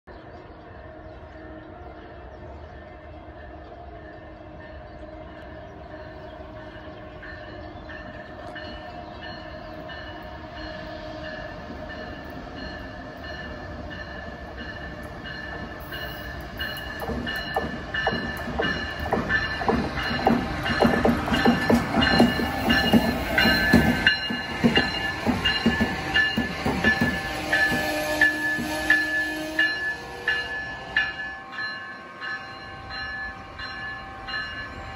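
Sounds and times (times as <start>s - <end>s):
electric locomotive whine: 0.1s - 34.9s.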